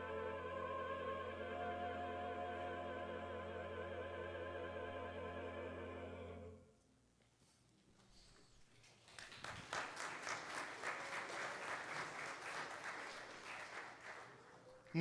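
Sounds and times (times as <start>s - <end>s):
choir singing held chord: 0.0s - 6.7s
congregation clapping: 8.8s - 15.0s.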